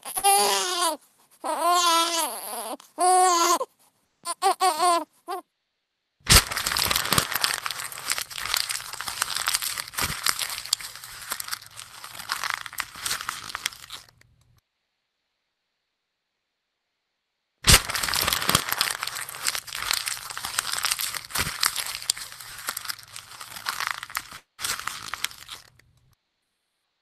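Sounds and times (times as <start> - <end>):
baby-like cry and whimpers: 0.0 - 5.4
crinkling crackling clicks: 6.3 - 14.6, 17.7 - 26.2.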